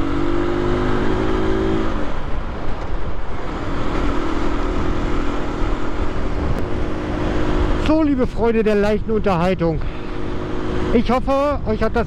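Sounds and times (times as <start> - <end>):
wind rumble on microphone: 1.8 - 9.8.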